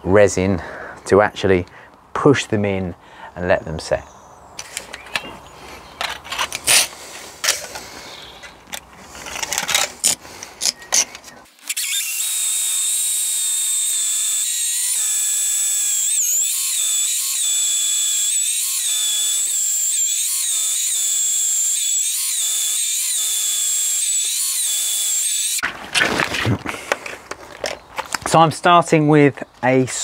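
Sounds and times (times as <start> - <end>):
hammer drill boring into concrete: 11.6 - 25.7.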